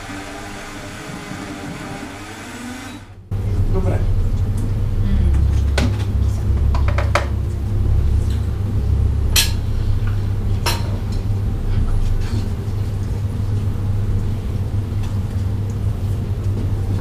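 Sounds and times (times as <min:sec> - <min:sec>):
blender motor grinding nuts: 0:00.0 - 0:03.2.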